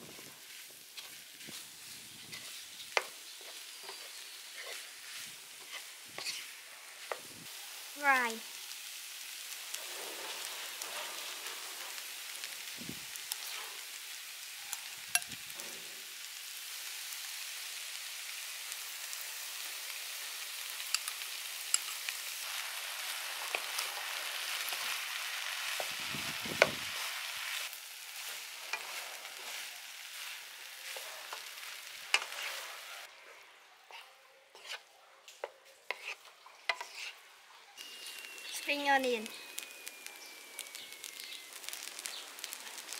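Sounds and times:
rice sizzling in a frying pan: 0.0 - 42.9
spatula tapping and scraping pan: 2.3 - 4.9, 5.6 - 7.3, 33.9 - 34.8, 35.4 - 37.2.

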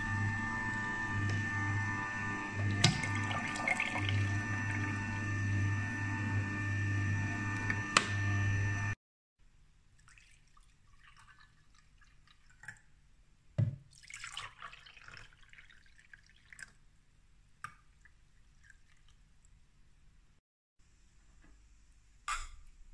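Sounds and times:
electric juicer humming: 0.0 - 9.0
liquid pouring and dripping: 2.6 - 4.9, 10.0 - 12.9, 13.8 - 16.8, 17.6 - 19.6
plastic jug knock: 13.6 - 13.9.

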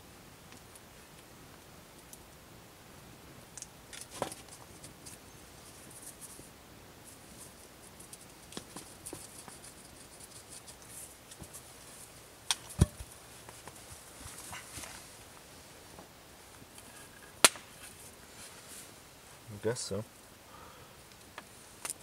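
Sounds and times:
wooden stick scraping and cracking: 3.6 - 6.4, 7.2 - 15.1, 16.0 - 18.5.

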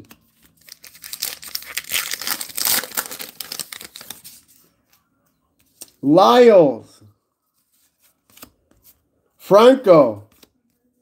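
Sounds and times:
card pack wrapper ripping: 0.6 - 4.2.

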